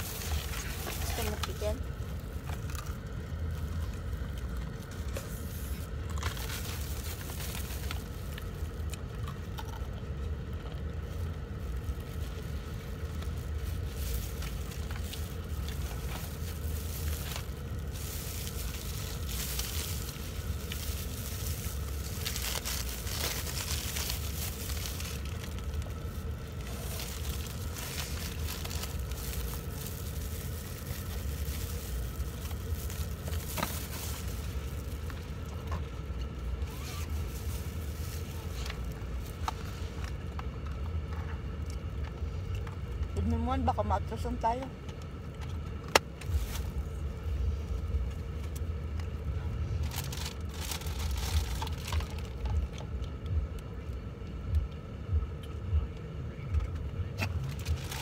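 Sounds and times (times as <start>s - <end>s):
fried chicken crunching: 0.0s - 39.5s
plastic gloves crinkling: 0.0s - 44.3s, 45.5s - 53.2s, 56.6s - 58.0s
low hum inside car: 0.0s - 58.0s.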